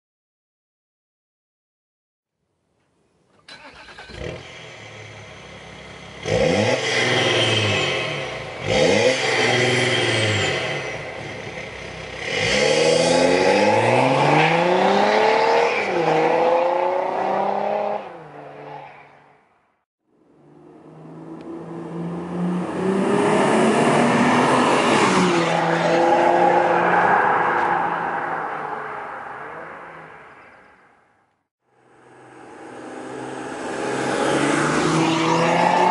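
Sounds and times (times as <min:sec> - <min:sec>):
diesel car engine starting and idling: 0:03.4 - 0:08.8
engine revving: 0:03.5 - 0:18.2, 0:20.5 - 0:28.8, 0:32.1 - 0:35.9.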